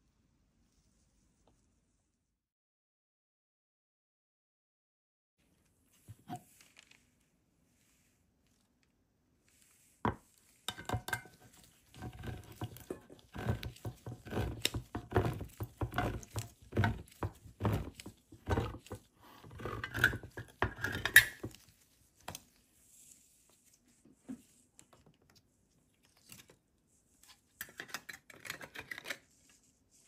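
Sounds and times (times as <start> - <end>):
can opener cutting tin: 12.0 - 18.9, 19.5 - 21.5.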